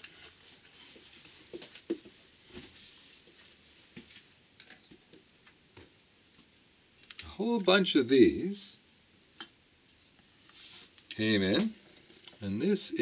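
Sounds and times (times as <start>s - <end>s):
soft rustle: 0.0s - 4.4s, 9.9s - 12.6s.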